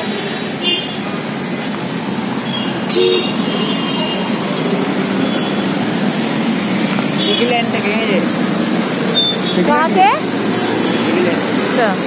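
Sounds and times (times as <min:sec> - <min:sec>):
road traffic noise: 0:00.0 - 0:12.0
car horn toots: 0:02.5 - 0:04.3, 0:09.1 - 0:09.8.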